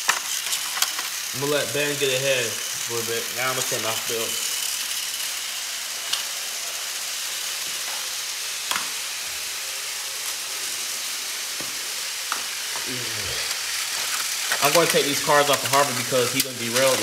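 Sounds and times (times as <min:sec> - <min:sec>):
plastic toy track clicks: 0:00.0 - 0:01.4, 0:03.4 - 0:08.0, 0:13.5 - 0:17.0
steady hiss: 0:00.0 - 0:17.0.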